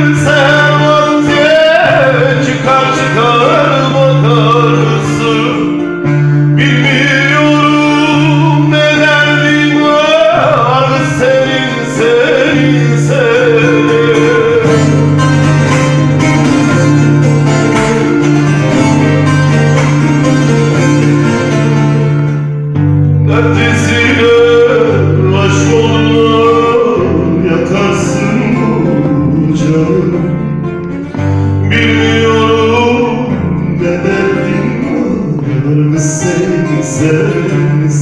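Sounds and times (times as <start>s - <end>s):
man singing into a microphone: 0.0s - 17.2s, 23.2s - 38.0s
plucked string instrument: 0.0s - 38.0s.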